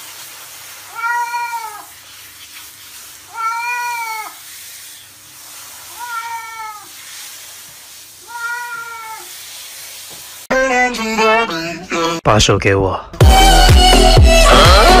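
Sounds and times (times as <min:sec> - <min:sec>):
handheld shower running: 0:00.0 - 0:10.5
cat meowing loudly: 0:00.9 - 0:01.9, 0:03.3 - 0:04.4, 0:05.9 - 0:07.0, 0:08.2 - 0:09.4.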